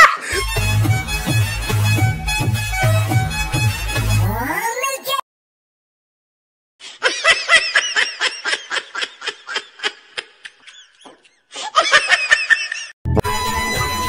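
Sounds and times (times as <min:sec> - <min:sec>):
music: 0:00.3 - 0:04.5, 0:13.1 - 0:14.0
person giggling: 0:06.9 - 0:12.9.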